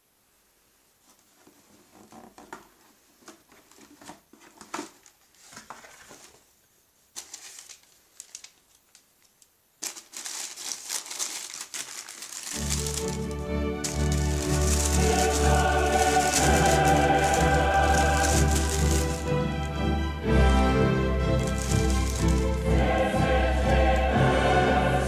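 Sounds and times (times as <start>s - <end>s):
tissue paper rustling: 2.8s - 6.5s, 7.1s - 9.0s, 9.8s - 24.0s.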